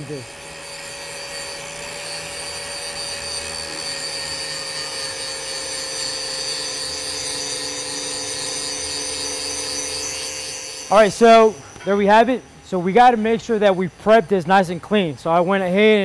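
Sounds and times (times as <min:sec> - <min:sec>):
angle grinder grinding steel: 0:00.0 - 0:13.6.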